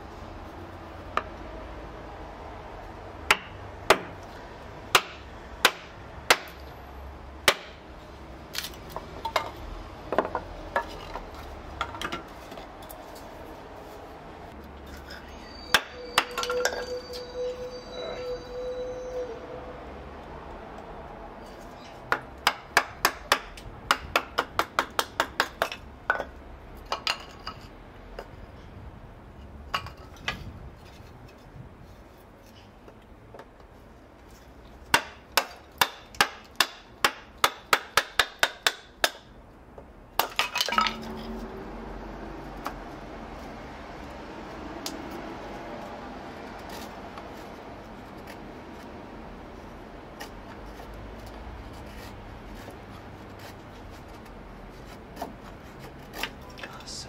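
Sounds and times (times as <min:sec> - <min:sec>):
knife scraping wood: 0:46.5 - 0:56.8.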